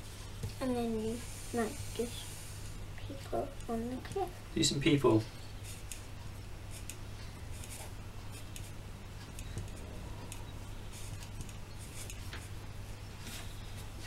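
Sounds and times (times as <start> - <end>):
steady low hum: 0.0 - 14.0
marker pens scratching on paper: 6.7 - 8.8, 10.9 - 12.5.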